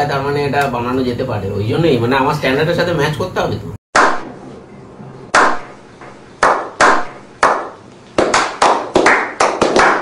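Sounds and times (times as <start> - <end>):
group hand clapping: 4.0 - 4.3, 5.3 - 5.7, 6.4 - 10.0.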